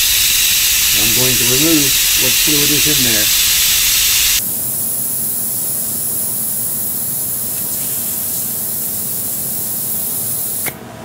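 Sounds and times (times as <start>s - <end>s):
air-powered brake bleeder hissing: 0.0s - 4.4s.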